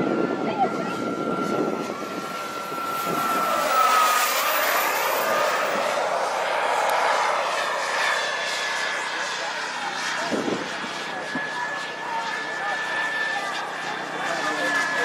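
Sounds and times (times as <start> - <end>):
model jet turbine whining: 0.0 - 15.0.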